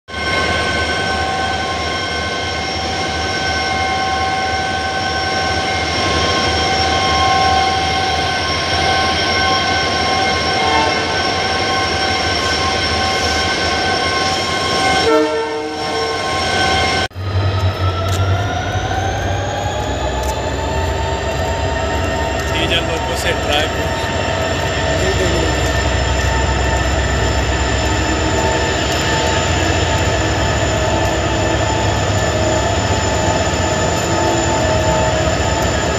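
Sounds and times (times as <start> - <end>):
diesel locomotive idling: 16.8 - 35.9.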